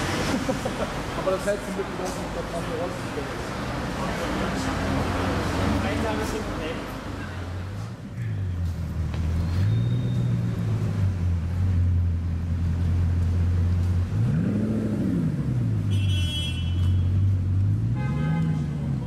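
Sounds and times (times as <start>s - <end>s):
engine revving: 13.8s - 15.9s
car horn toots: 15.9s - 17.2s, 18.0s - 18.7s.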